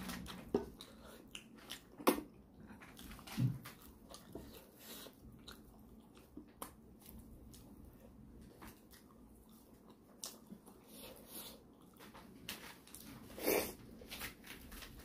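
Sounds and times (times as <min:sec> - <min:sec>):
man chewing and lip-smacking: 0:00.2 - 0:12.2.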